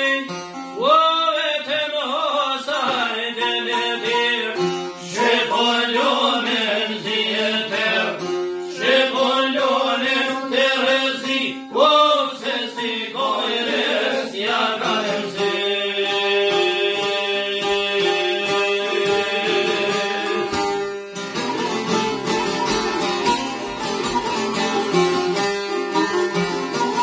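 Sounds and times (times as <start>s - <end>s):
man singing folk song: 0.0s - 25.1s
strummed long-necked lutes: 0.0s - 27.0s.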